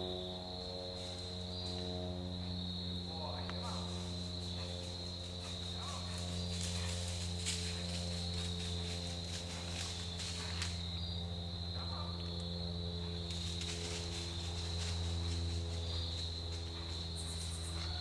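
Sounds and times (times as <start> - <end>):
crickets trilling: 0.0 - 18.0
low hum: 0.0 - 18.0.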